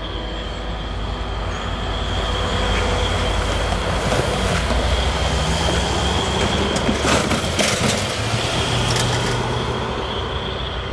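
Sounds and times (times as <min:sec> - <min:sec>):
high-pitched wheel squeal: 0:00.0 - 0:07.4, 0:09.8 - 0:10.9
diesel locomotive engine running: 0:00.0 - 0:10.9
wheels clicking on rails: 0:02.4 - 0:09.6.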